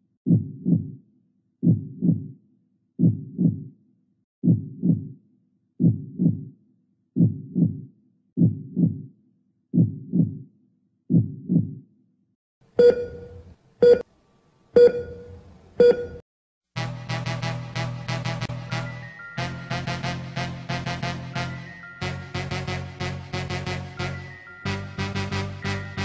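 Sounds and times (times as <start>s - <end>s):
heartbeat thuds: 0.3s - 1.0s, 1.6s - 2.4s, 3.0s - 3.7s, 4.4s - 5.2s, 5.8s - 6.5s, 7.2s - 9.1s, 9.7s - 10.5s, 11.1s - 11.8s.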